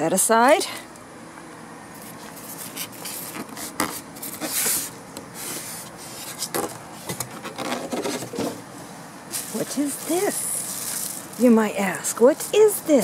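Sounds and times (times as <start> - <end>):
packing material rubbing in box: 2.0 - 6.7.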